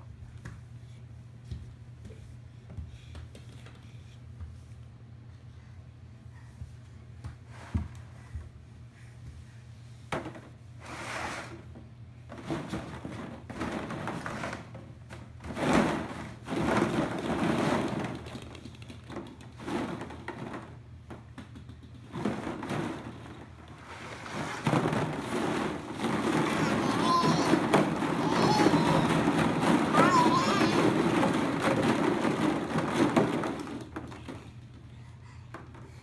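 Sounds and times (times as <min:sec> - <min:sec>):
plastic balls clattering: 0:12.3 - 0:34.8.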